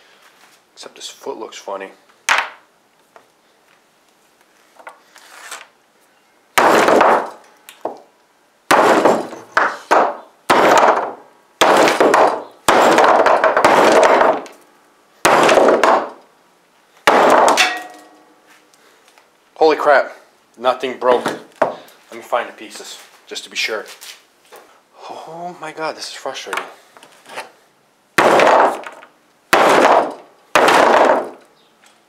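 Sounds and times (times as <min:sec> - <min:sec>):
hammer striking plastic on wood: 0:08.7 - 0:14.5, 0:15.2 - 0:16.2.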